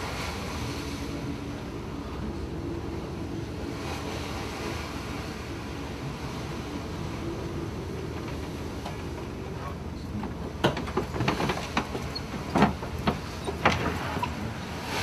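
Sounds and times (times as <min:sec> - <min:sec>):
ship engine rumble: 0:00.0 - 0:15.0
sharp knocks and clatters: 0:10.2 - 0:14.1.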